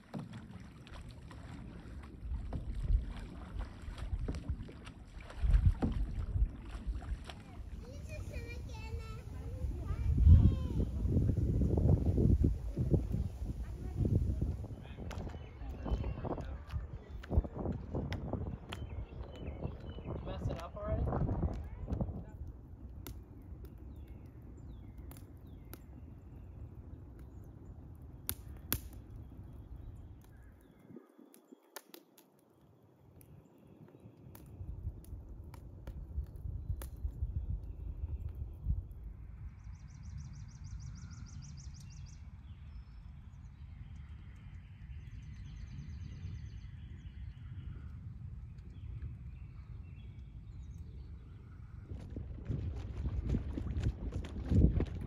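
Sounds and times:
wind rumble on microphone: 0:00.0 - 0:31.6, 0:33.2 - 0:55.0
steady low rumble: 0:02.1 - 0:23.3.

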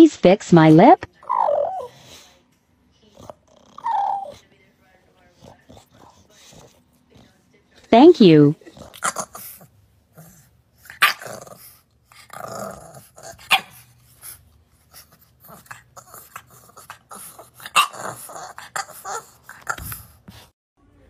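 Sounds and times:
puppy growling: 0:01.2 - 0:02.2, 0:03.1 - 0:04.5, 0:05.2 - 0:07.4, 0:08.6 - 0:20.4
puppy barking: 0:13.4 - 0:13.8, 0:17.7 - 0:18.2.

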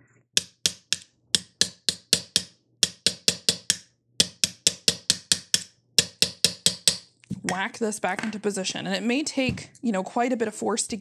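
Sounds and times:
hammer striking metal: 0:00.4 - 0:07.0.

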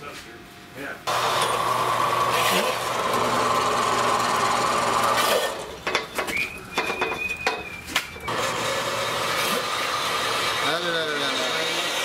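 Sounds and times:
band saw cutting metal tube: 0:01.1 - 0:05.8, 0:08.3 - 0:12.0.

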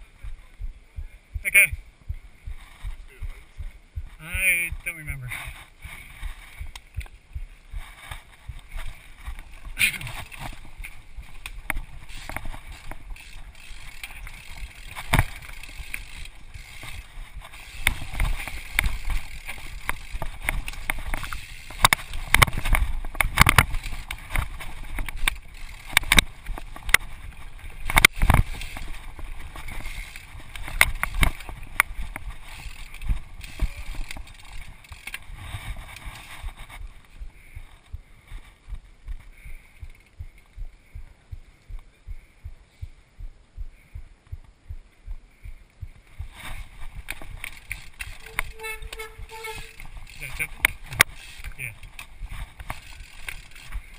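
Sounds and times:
rumble of bike tyres and frame: 0:00.0 - 0:53.9
bike knocks and clunks on rocks: 0:07.8 - 0:37.0.

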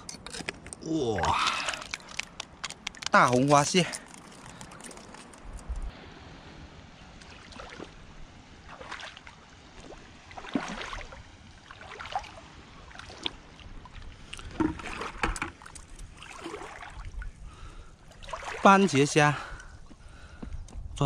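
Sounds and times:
seawater splashing and sloshing: 0:07.0 - 0:19.5.

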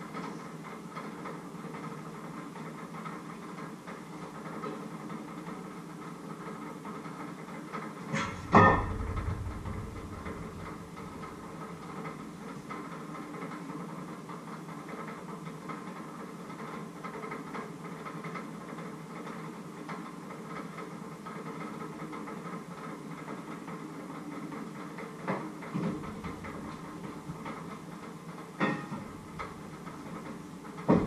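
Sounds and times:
knocks: 0:08.1 - 0:11.9, 0:28.6 - 0:29.6
kitchen background hum: 0:28.6 - 0:31.0.

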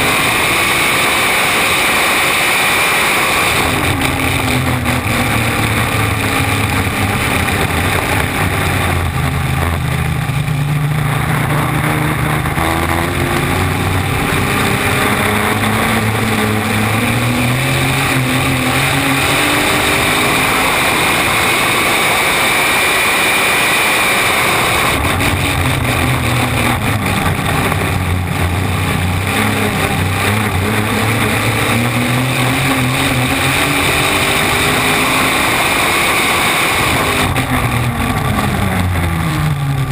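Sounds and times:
boat engine running hard: 0:00.0 - 0:39.9
wind: 0:00.0 - 0:39.9.

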